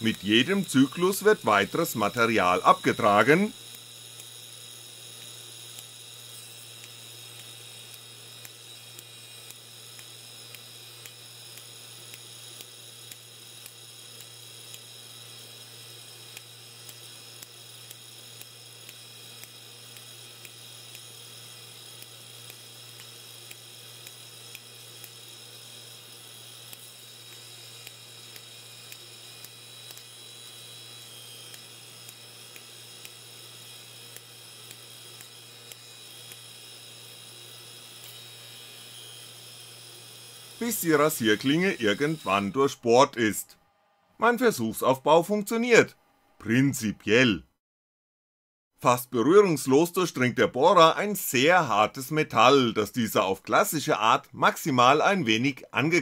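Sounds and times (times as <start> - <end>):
spark snapping ticks: 0.0 - 42.4
high electrical whines: 0.0 - 46.9
machine low hum: 0.0 - 47.4.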